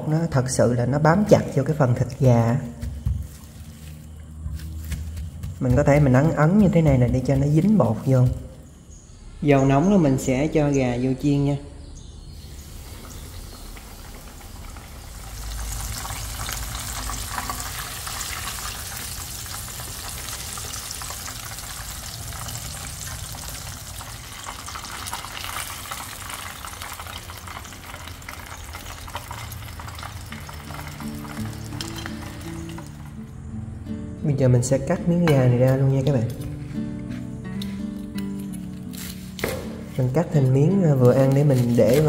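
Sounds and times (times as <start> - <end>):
chicken frying in hot oil: 12.6 - 32.9.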